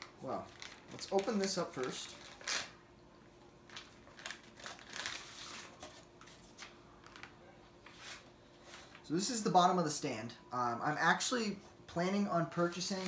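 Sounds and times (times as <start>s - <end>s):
packing material rustling and crinkling: 0.2s - 2.8s, 3.7s - 8.2s.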